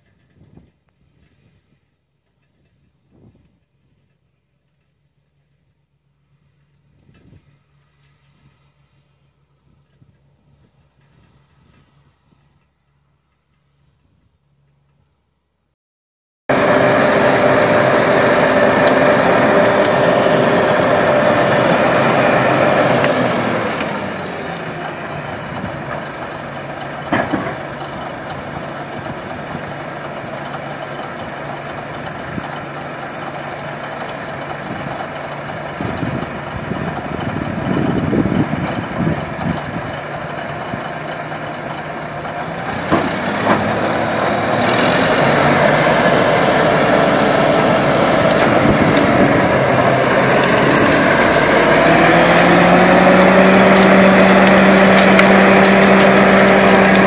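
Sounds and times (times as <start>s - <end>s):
bulldozer diesel engine under load: 16.5s - 57.0s
sharp cracks of brush: 49.7s - 57.0s.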